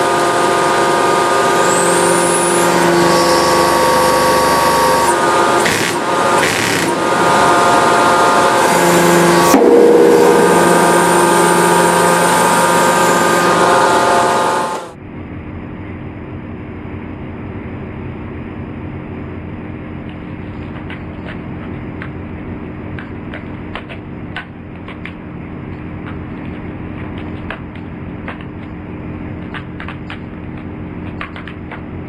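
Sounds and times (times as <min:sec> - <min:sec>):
hydraulic press humming: 0:00.0 - 0:15.0.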